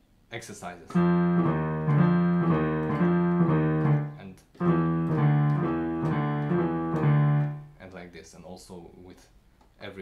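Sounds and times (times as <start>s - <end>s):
piano low octave notes: 0.9s - 7.9s.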